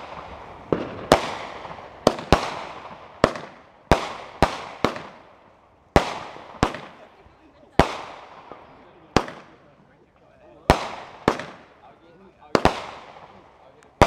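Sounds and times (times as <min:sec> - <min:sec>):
firework shells bursting: 0:00.0 - 0:07.0, 0:10.7 - 0:11.8.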